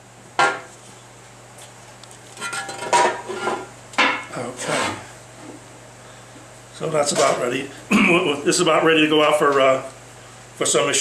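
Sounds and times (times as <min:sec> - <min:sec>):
metal clattering and scraping: 0:02.4 - 0:03.7.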